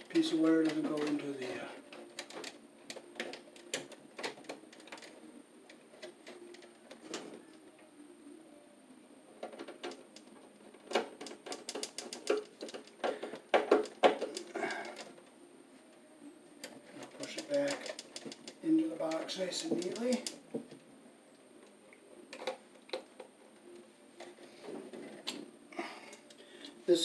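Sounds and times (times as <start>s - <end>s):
tools clicking on metal panel: 16.6s - 20.4s.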